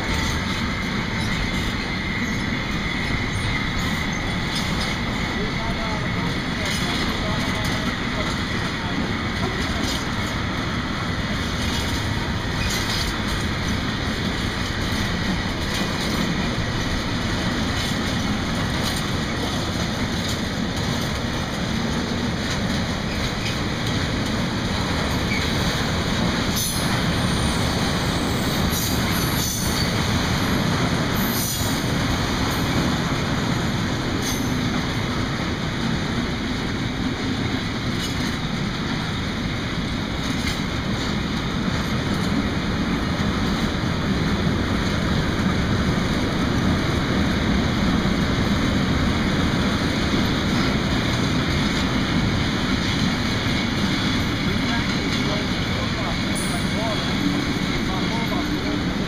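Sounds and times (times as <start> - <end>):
steel wheels rumbling on rails: 0.0 - 59.0
wheels clicking over rail joints: 0.0 - 59.0.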